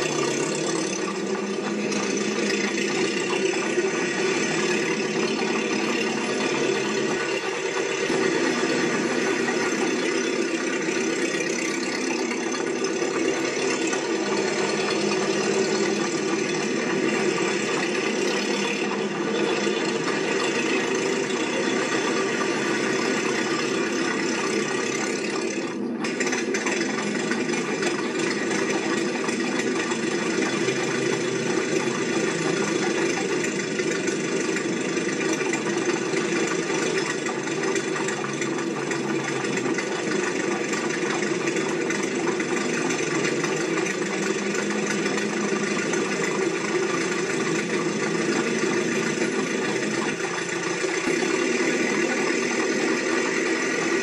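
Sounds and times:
engine running with a rattle: 0.0s - 54.0s.

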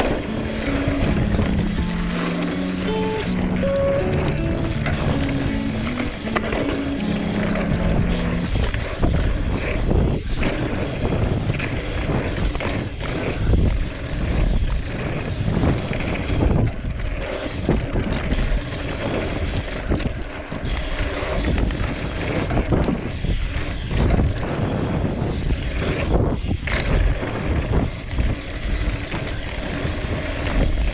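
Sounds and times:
bike tyres rolling over dirt: 7.6s - 30.9s
wind rushing over microphone: 7.8s - 30.9s.

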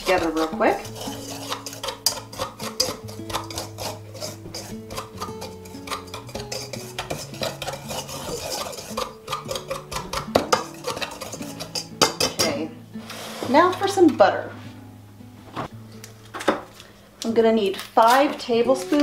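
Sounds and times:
pastry blender scraping bowl: 0.0s - 14.0s
soft background music: 0.0s - 19.0s.

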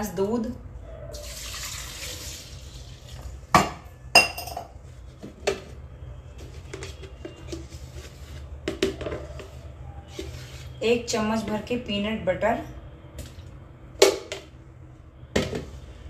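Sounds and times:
milk pouring into jar: 1.3s - 2.8s.

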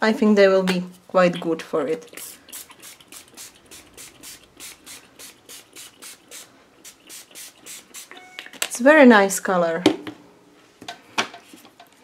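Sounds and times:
spray bottle pumping mist: 2.0s - 8.2s.

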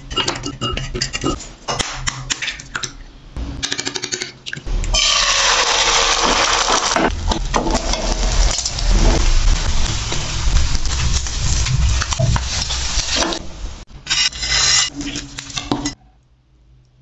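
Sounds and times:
egg sizzling in frying pan: 5.0s - 13.4s.

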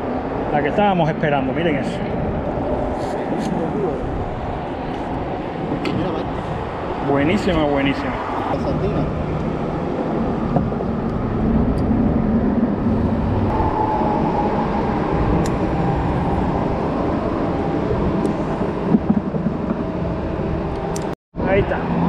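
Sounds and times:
traffic rumble on bridge: 0.0s - 22.0s
faint passing tone: 13.4s - 18.7s.

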